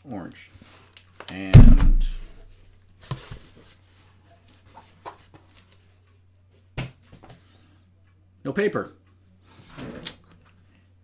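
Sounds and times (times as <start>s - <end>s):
cardboard box knocks: 1.6s - 2.3s.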